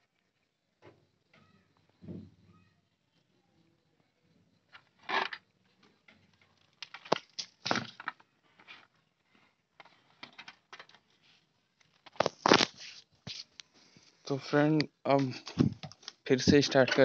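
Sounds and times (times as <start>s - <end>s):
hands handling wires and connectors: 6.1s - 8.9s, 9.8s - 11.2s, 11.8s - 13.7s, 15.1s - 17.0s.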